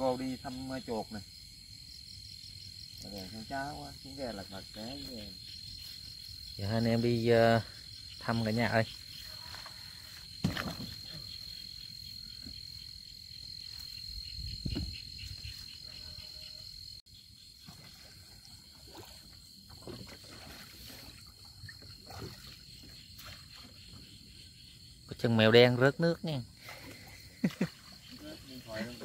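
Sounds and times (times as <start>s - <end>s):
insects trilling: 0.0s - 29.0s
faint knocks of boat pole: 14.6s - 15.0s.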